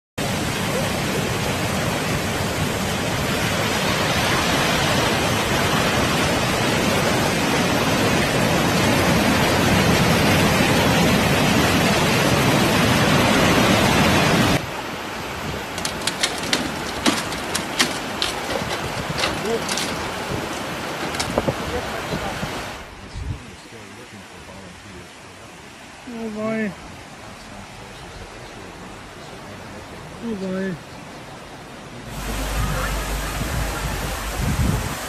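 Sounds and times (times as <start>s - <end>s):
swollen flood river rushing: 0.2s - 22.9s
floodwater rushing down stone steps: 15.6s - 22.7s
sharp clicks: 15.8s - 21.4s.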